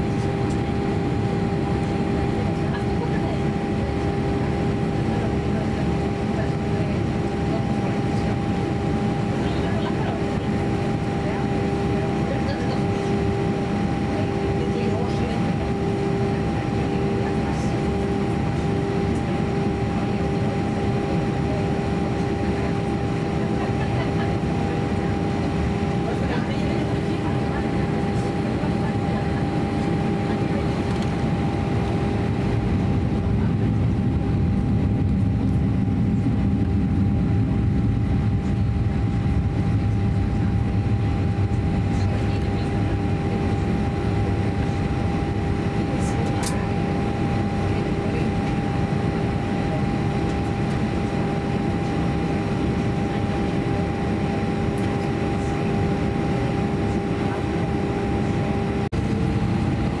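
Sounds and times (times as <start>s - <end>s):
aircraft cabin engine rumble: 0.0s - 60.0s
constant hum tone: 0.0s - 60.0s.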